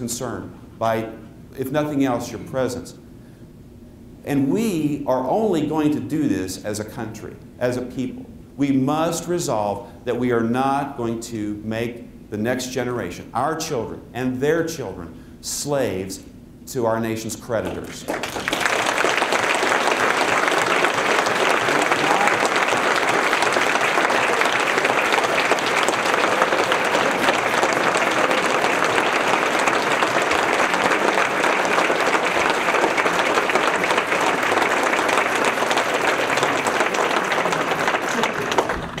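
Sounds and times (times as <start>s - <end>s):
large audience applauding: 17.8s - 39.0s.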